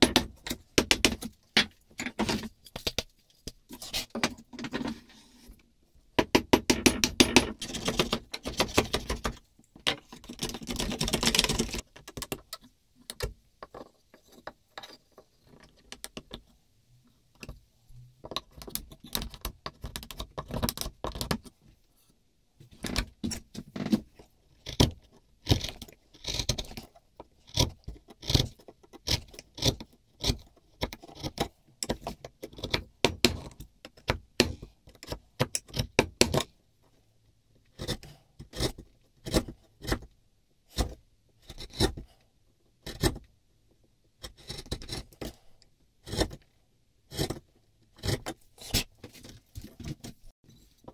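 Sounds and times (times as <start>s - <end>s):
chisel cuts paring wood: 0.0s - 2.5s.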